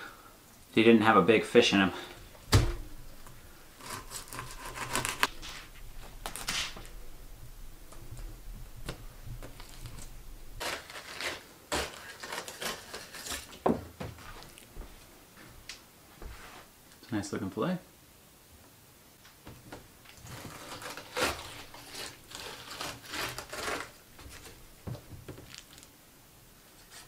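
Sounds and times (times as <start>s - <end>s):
knife scraping fish: 3.8s - 5.7s, 9.5s - 13.5s, 20.3s - 24.6s.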